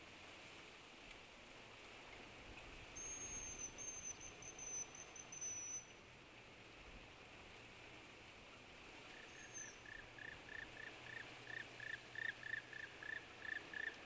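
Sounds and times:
faint outdoor hiss: 0:00.0 - 0:14.0
high thin bird song: 0:03.0 - 0:06.0, 0:09.2 - 0:10.9.

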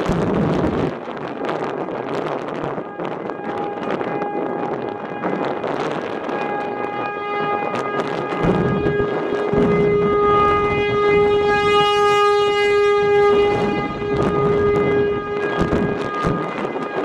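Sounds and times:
warning siren steady tone: 0:00.0 - 0:17.0
wind buffeting microphone: 0:00.0 - 0:17.0.

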